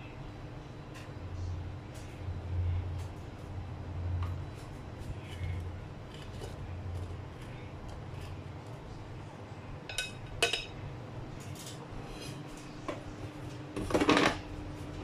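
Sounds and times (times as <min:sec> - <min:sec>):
air fryer basket clattering: 0:09.9 - 0:10.8, 0:13.7 - 0:14.6
chopsticks clinking on plate: 0:09.9 - 0:10.8.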